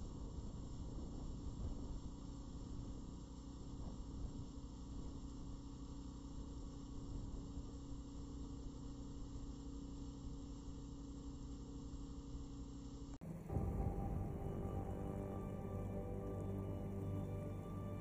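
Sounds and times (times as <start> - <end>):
motorboat engine droning: 9.6 - 18.0.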